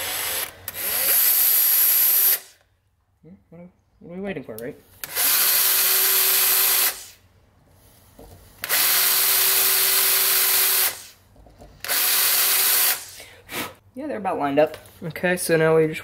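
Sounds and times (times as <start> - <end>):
cordless drill boring into metal: 0.0 - 2.5, 5.0 - 7.2, 8.6 - 11.1, 11.8 - 13.2.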